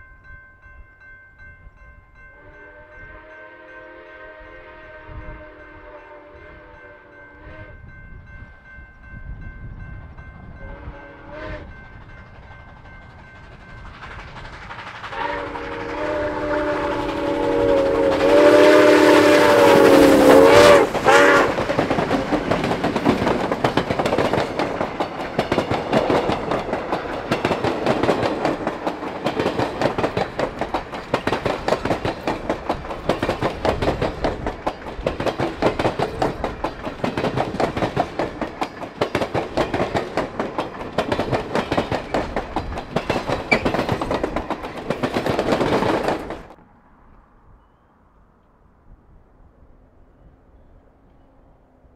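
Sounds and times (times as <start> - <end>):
steam locomotive whistle: 2.3 - 7.9, 10.6 - 11.8, 15.1 - 21.8
train wheels clacking over rail joints: 11.8 - 46.6.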